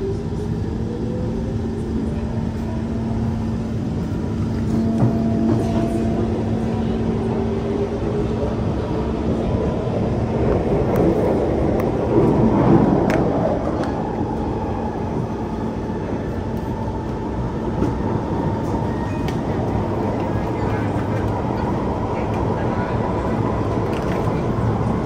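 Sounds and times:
train wheels rumbling on rail: 0.0s - 25.0s
higher tone: 4.6s - 8.1s.

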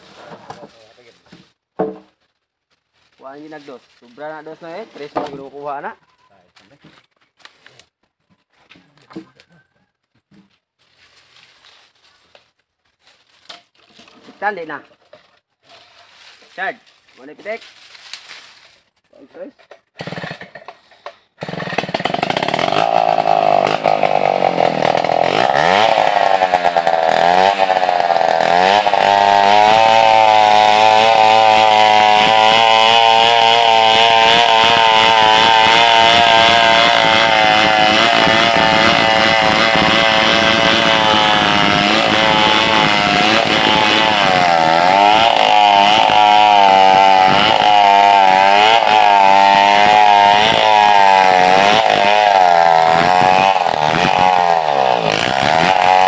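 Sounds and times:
chainsaw ripping a log: 19.4s - 56.0s.

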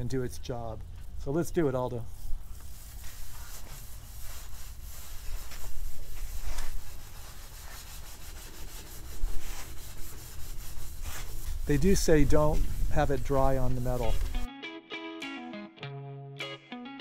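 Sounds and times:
scouring pad scrubbing metal: 2.3s - 14.2s.

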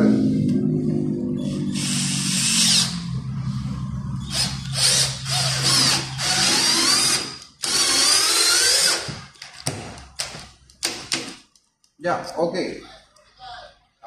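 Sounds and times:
cordless drill driving screw: 4.3s - 9.3s.

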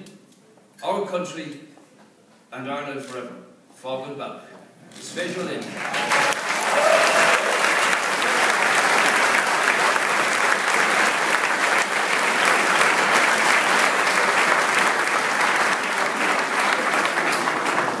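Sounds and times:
audience applauding: 5.6s - 18.0s.

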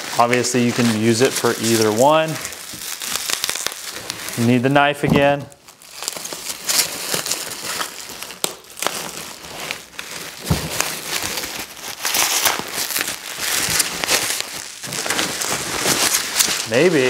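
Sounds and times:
packaging wrap crinkling: 0.0s - 17.0s.

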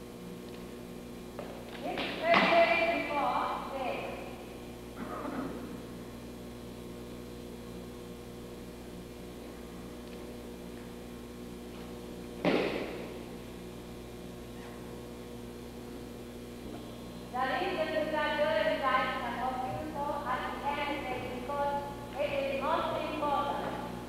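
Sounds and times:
electrical mains hum: 0.0s - 24.0s
body thudding onto mat: 12.4s - 13.1s.

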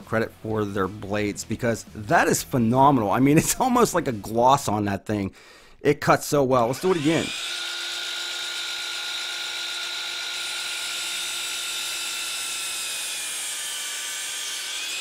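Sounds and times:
miter saw motor whining: 6.8s - 15.0s.

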